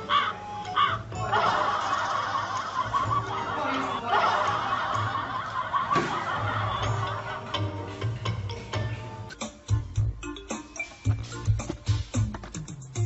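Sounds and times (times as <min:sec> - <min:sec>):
laughter: 0:01.2 - 0:07.6.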